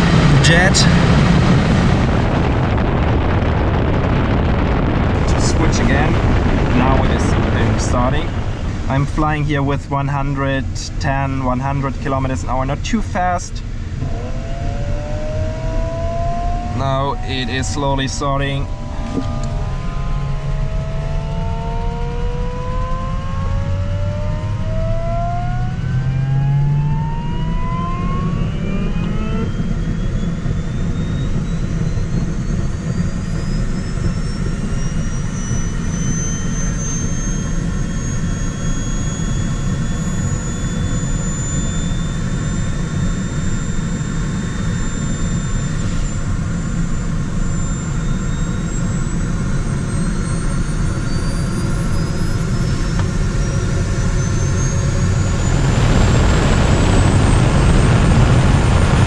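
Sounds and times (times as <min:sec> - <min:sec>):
constant low rumble: 0:00.0 - 0:59.0
small turbojet whine: 0:00.0 - 0:59.0.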